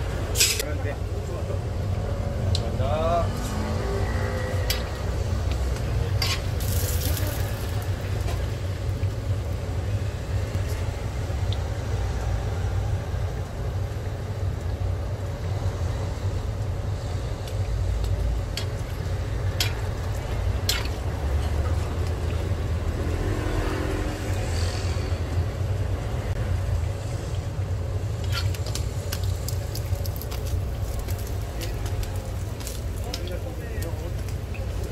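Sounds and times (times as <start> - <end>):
food sizzling in oil: 3.5 - 11.8, 17.2 - 25.4, 27.0 - 34.9.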